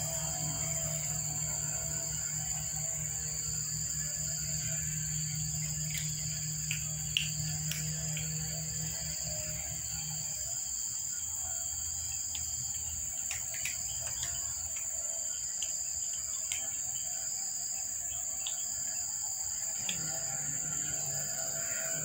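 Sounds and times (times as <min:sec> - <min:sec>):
insects droning: 0:00.0 - 0:22.0
faint clicks: 0:13.2 - 0:14.9.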